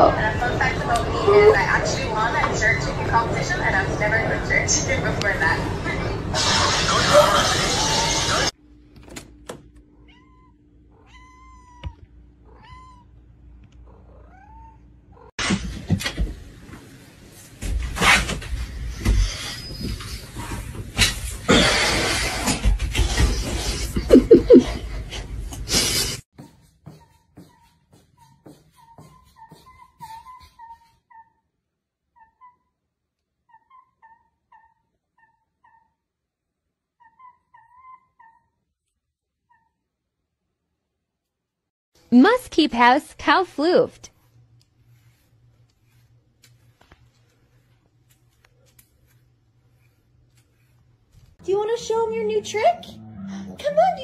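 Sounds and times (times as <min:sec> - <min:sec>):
cat meowing: 0:10.0 - 0:13.1
footsteps on wooden stairs: 0:26.4 - 0:30.6
owl squeaky calls: 0:28.8 - 0:31.4, 0:33.5 - 0:36.0, 0:37.0 - 0:38.6.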